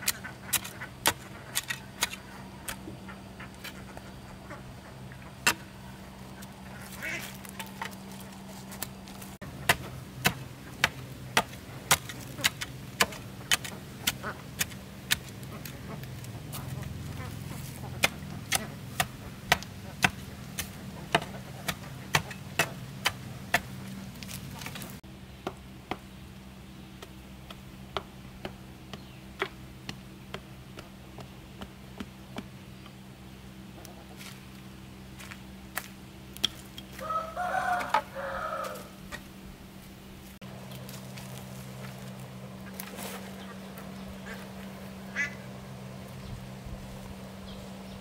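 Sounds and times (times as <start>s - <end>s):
digging tool striking stony soil: 0.0s - 2.8s, 5.4s - 5.7s, 8.8s - 26.0s, 35.2s - 37.0s
rooster crowing: 37.0s - 39.0s.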